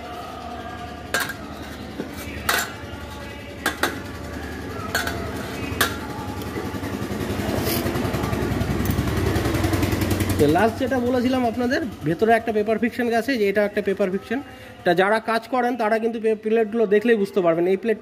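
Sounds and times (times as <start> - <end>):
low engine rumble: 0.0 - 14.9
metal clutch plates clinking: 1.1 - 4.2, 4.8 - 6.5.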